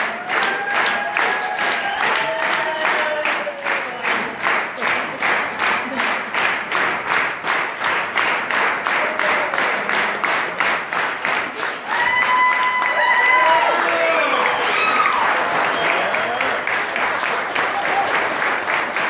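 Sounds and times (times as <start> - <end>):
audience clapping in unison: 0.0 - 19.0
crowd whooping: 0.2 - 3.6, 11.9 - 16.7.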